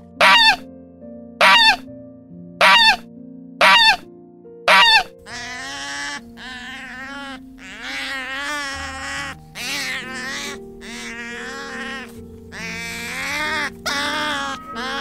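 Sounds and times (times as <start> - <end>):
background music: 0.0 - 15.0
goose honking: 0.2 - 0.6, 1.4 - 1.8, 2.6 - 3.0, 3.6 - 4.0, 4.7 - 15.0
sea otter squealing: 0.2 - 0.6, 1.4 - 1.8, 2.6 - 3.0, 3.6 - 4.0, 4.7 - 15.0.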